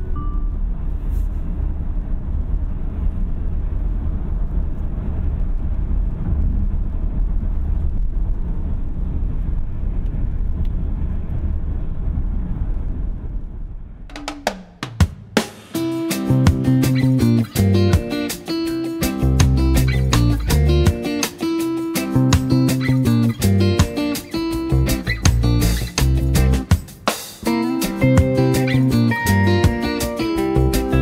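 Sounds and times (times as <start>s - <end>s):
road and wind noise in car cabin: 0.0s - 14.1s.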